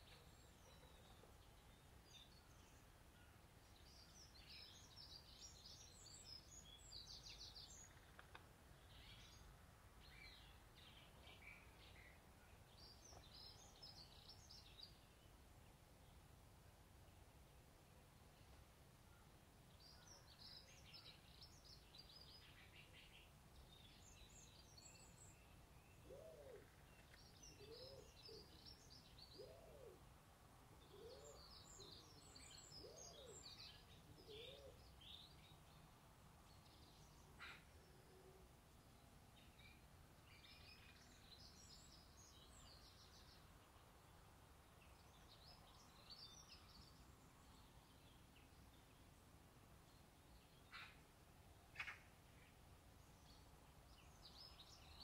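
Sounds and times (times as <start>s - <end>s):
small birds chirping: 0.0s - 16.3s, 18.2s - 30.1s, 30.8s - 55.0s.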